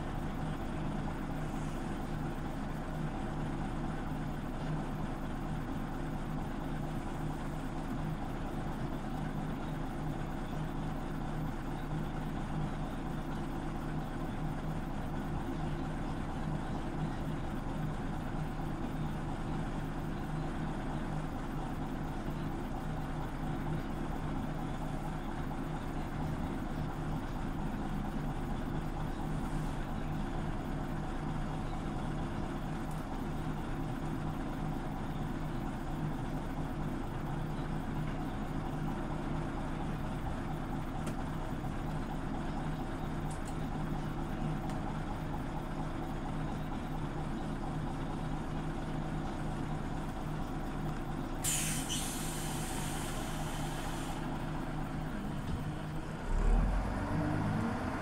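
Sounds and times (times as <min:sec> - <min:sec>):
bus engine drone: 0:00.0 - 0:58.0
compressed air hiss: 0:51.4 - 0:54.2.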